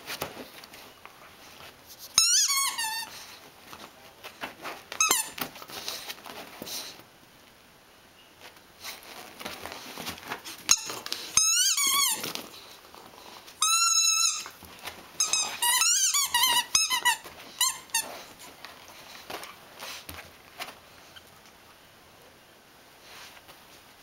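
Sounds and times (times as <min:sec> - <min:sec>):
squeaky toy ball squeaking: 0:02.2 - 0:03.1, 0:05.0 - 0:05.4, 0:10.7 - 0:12.3, 0:13.6 - 0:14.6, 0:15.2 - 0:18.1.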